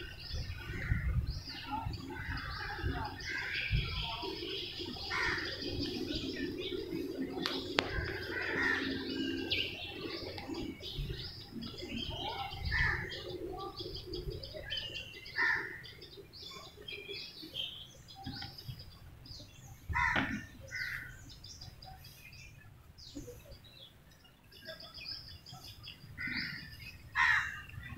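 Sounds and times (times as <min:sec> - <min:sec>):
faint low drone: 0:00.0 - 0:15.3
birds chirping: 0:00.0 - 0:27.9.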